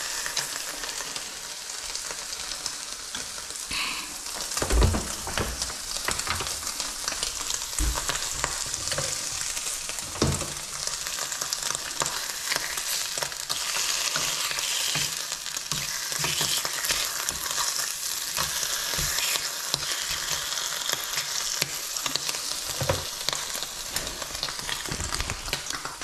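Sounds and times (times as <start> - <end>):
bacon sizzling in a frying pan: 0.0 - 26.0
soft knocks: 4.4 - 9.3.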